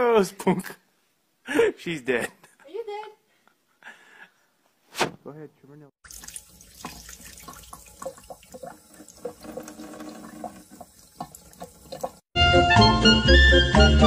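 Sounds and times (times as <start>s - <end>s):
tap water spattering into sink: 6.0s - 12.3s.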